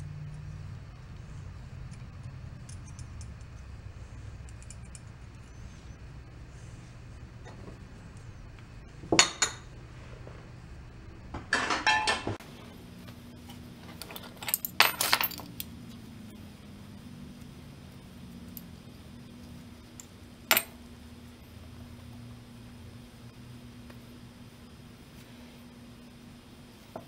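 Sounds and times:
steady low hum: 0:00.0 - 0:27.0
metal parts clinking: 0:13.8 - 0:15.7.

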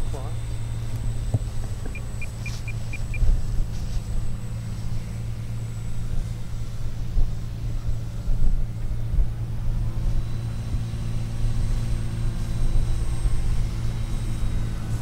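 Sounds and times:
faint electric motor whine: 0:00.0 - 0:15.0
steady low rumble: 0:00.0 - 0:15.0.

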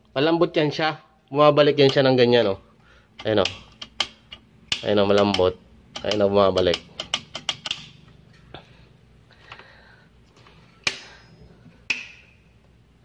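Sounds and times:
circuit breaker toggle clicks: 0:03.2 - 0:08.0.

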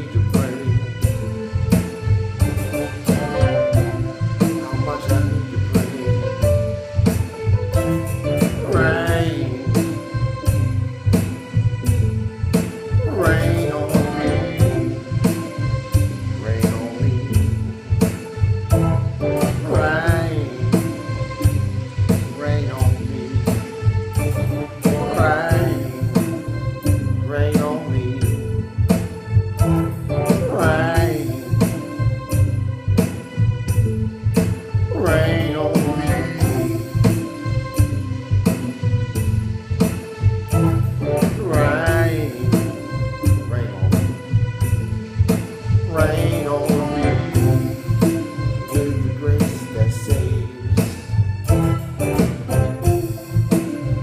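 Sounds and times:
person singing: 0:00.0 - 0:00.9, 0:02.4 - 0:06.6, 0:08.4 - 0:10.2, 0:13.0 - 0:15.2, 0:16.4 - 0:17.4, 0:19.3 - 0:21.2, 0:22.3 - 0:23.7, 0:24.6 - 0:26.4, 0:27.2 - 0:28.4, 0:29.6 - 0:32.0, 0:34.9 - 0:37.0, 0:40.6 - 0:44.2, 0:45.8 - 0:54.0
bass notes: 0:00.0 - 0:54.0
gospel music with drum beat: 0:00.0 - 0:54.0
person singing gliding phrases: 0:02.5 - 0:03.9, 0:08.6 - 0:10.0, 0:13.0 - 0:14.9, 0:19.6 - 0:20.8, 0:24.8 - 0:26.0, 0:27.3 - 0:28.3, 0:29.7 - 0:31.5, 0:34.9 - 0:36.7, 0:41.4 - 0:42.7, 0:45.9 - 0:47.7.

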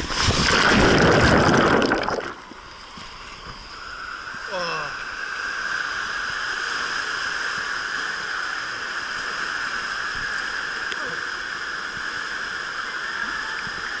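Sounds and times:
water rushing: 0:00.0 - 0:14.0.

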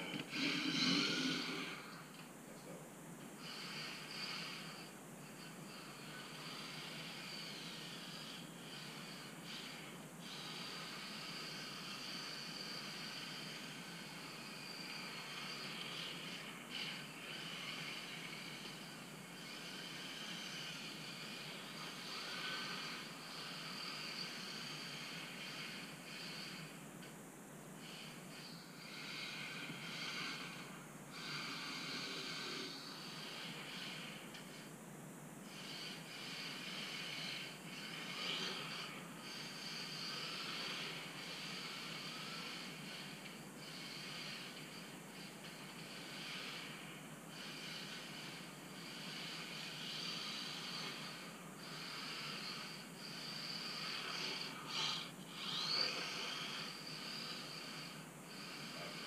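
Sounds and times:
tyres hissing across floor: 0:00.0 - 0:02.8, 0:27.8 - 0:34.8, 0:35.4 - 0:59.0.

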